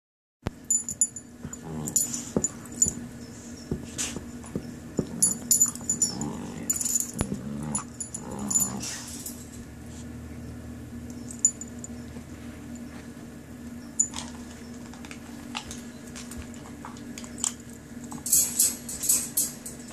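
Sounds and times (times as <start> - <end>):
collar tags jingling: 0.6 - 9.9, 11.0 - 13.0, 13.8 - 19.9
dogs growling playfully: 1.4 - 3.1, 3.8 - 9.6
thumps of paws and bodies: 1.4 - 7.8.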